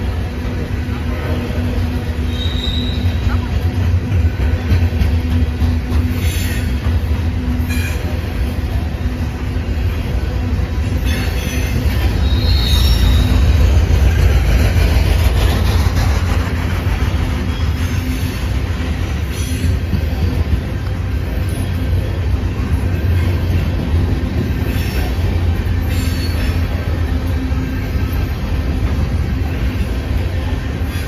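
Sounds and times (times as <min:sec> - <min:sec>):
train clanks: 0:00.0 - 0:31.0
train wheels rumbling on rails: 0:00.0 - 0:31.0
high wheel squeal: 0:02.2 - 0:03.4, 0:10.9 - 0:13.8, 0:24.6 - 0:27.0.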